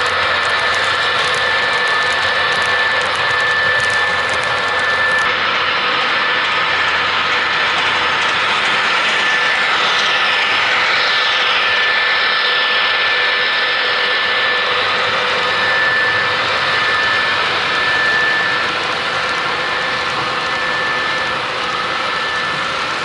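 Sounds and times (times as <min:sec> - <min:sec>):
model train wheels clicking: 0:00.0 - 0:05.3
model train mechanical hum: 0:00.0 - 0:23.0.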